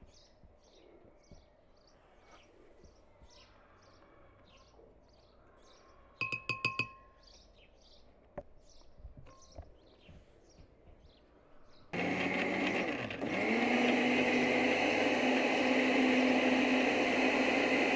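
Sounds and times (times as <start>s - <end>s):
spoon tapping glass jar: 6.2s - 7.2s.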